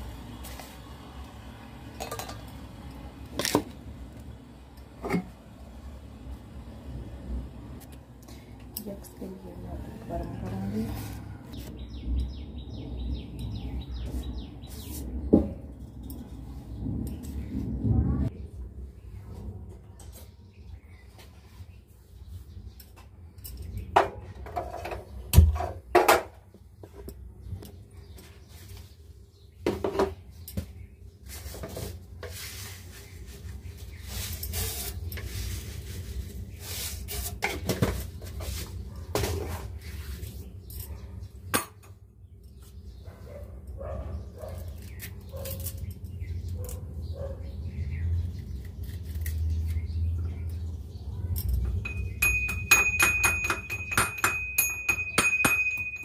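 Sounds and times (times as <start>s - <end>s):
pots cups and cutlery clattering: 2.0s - 2.5s, 51.5s - 56.0s.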